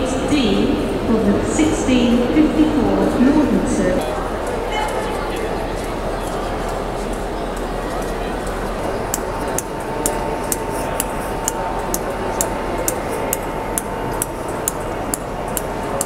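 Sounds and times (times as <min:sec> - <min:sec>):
steady hum: 0:00.0 - 0:16.0
light regular ticking: 0:06.6 - 0:16.0.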